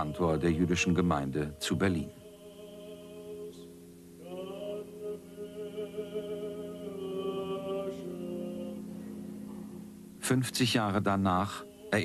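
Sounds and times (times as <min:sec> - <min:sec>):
man chanting with vibrato: 0:00.0 - 0:03.5.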